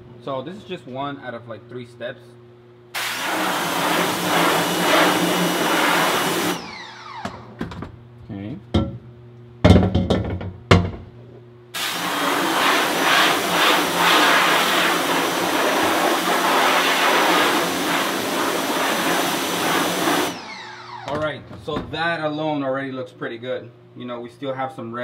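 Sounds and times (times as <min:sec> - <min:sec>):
pressure washer spraying mesh: 0:03.0 - 0:06.7, 0:11.8 - 0:20.8.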